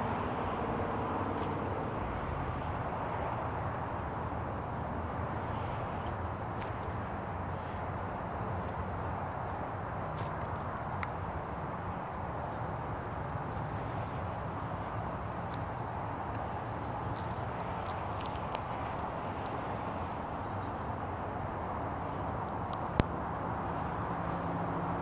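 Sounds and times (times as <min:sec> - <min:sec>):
birds chirping: 0:04.5 - 0:23.0, 0:23.6 - 0:24.8.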